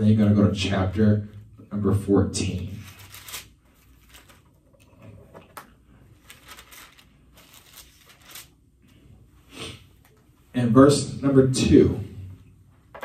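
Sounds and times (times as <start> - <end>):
pages being turned: 2.8 - 4.6, 5.6 - 8.6.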